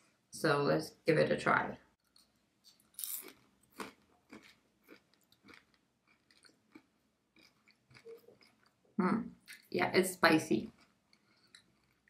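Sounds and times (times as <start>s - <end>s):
faint chewing of crunchy snack: 2.0s - 9.7s, 10.6s - 12.0s.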